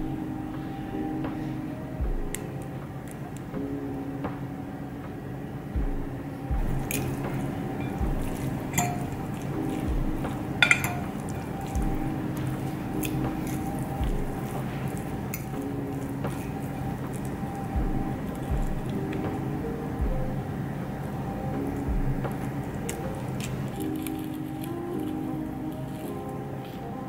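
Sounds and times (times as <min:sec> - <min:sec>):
soft background music with beat: 0:00.0 - 0:27.0
spoon and fork clinking on bowl: 0:06.9 - 0:17.4.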